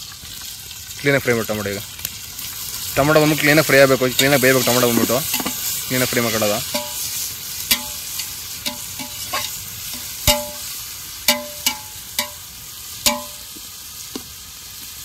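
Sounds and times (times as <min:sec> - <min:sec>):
tomatoes sizzling in hot oil: 0:00.0 - 0:15.0
metal ladle clanking against pot: 0:04.2 - 0:05.7, 0:06.7 - 0:07.1, 0:07.7 - 0:10.7, 0:11.3 - 0:12.4, 0:13.1 - 0:13.5.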